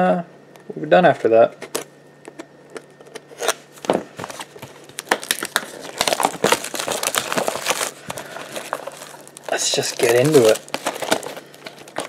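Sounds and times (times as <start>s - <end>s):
plastic shrink-wrap crinkling and tearing: 4.2s - 12.0s.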